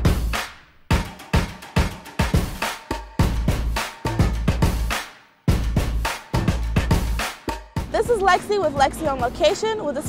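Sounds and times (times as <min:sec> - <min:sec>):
heavy bass: 0:00.0 - 0:09.4
driving drum beat: 0:00.0 - 0:10.0.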